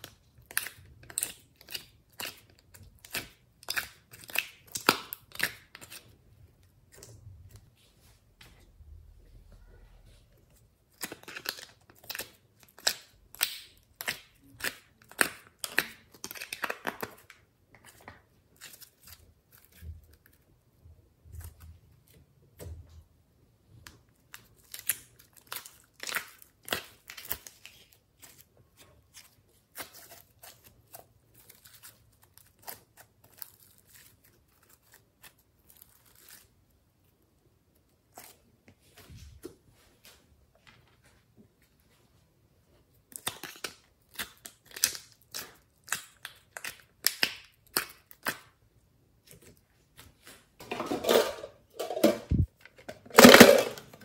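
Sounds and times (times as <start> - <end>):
plastic crinkling and tearing: 10.9 - 20.4, 24.2 - 36.7.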